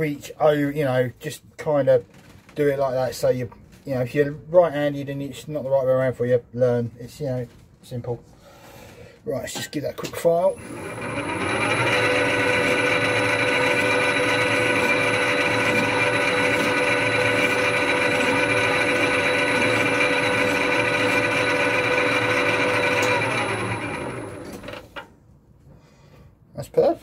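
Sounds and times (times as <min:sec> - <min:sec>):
metal lathe gear whine: 0:10.4 - 0:25.0
file scraping spinning steel: 0:10.5 - 0:25.0.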